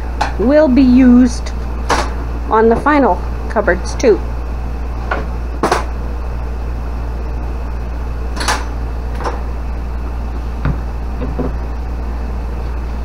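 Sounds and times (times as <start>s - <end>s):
steady low hum: 0.0s - 13.0s
wooden boards knocking on counter: 10.6s - 11.6s.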